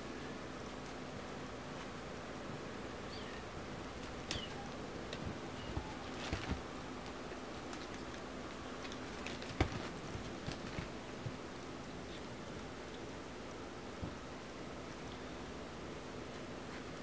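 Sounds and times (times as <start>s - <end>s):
kittens tapping and scratching: 3.9s - 13.0s.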